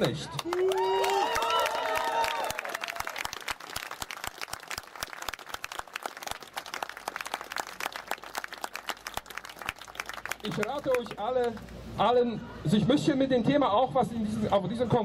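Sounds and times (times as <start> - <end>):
crowd applauding: 0.3 - 11.8.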